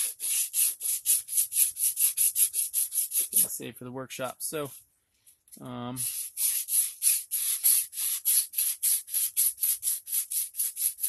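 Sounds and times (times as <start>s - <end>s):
sandpaper rubbing on steel: 0.0s - 3.5s, 6.0s - 11.0s.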